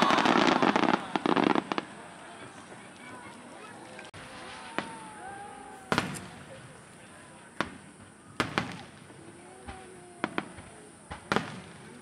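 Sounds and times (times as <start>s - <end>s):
crowd voices: 0.0s - 12.0s
fireworks bangs: 0.0s - 12.0s.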